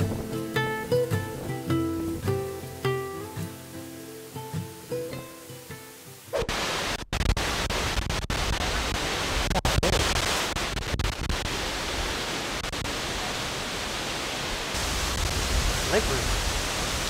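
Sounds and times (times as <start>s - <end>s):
waterfall rushing water: 0.0s - 17.0s.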